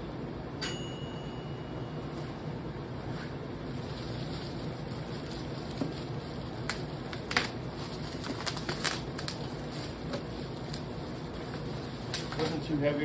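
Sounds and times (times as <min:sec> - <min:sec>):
bubble wrap crinkling: 0:03.0 - 0:12.7.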